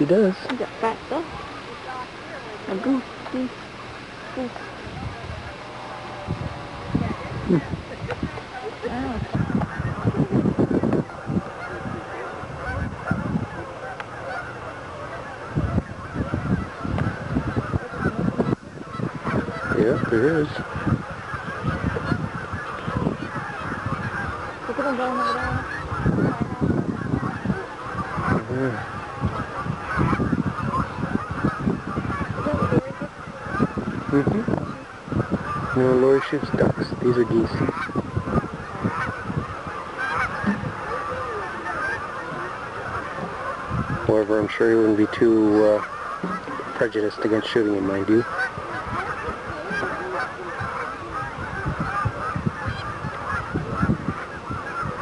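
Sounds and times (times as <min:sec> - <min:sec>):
geese honking: 0:00.0 - 0:55.0
dull low thumps: 0:36.5 - 0:40.9.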